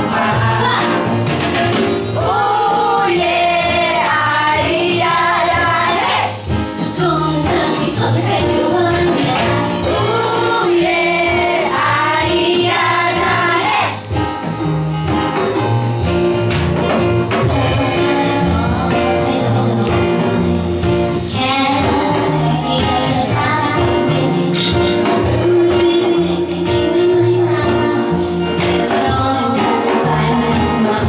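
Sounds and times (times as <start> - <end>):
light percussion beat: 0.0 - 31.0
upright double bass: 0.0 - 31.0
woman singing: 2.2 - 14.0, 17.3 - 20.5, 21.2 - 31.0.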